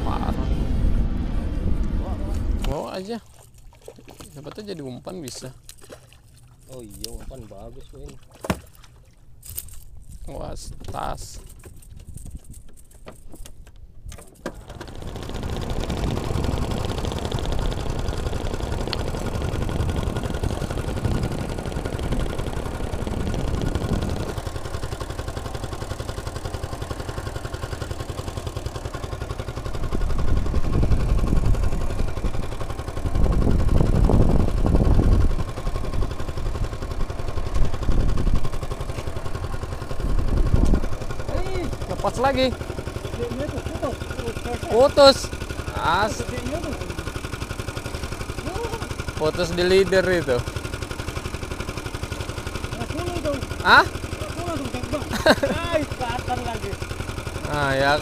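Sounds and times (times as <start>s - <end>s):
low rumble: 0.0s - 3.1s
small outboard engine running: 0.0s - 58.0s.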